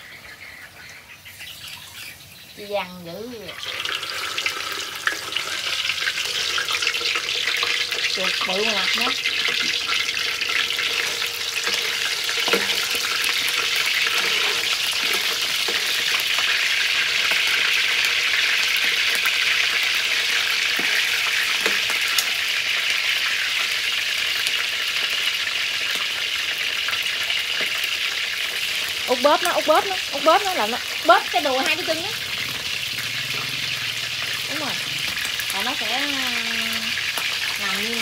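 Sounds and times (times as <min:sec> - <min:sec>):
meat sizzling in hot oil: 0:00.0 - 0:38.0
metal tongs clicking on pan: 0:11.6 - 0:13.0.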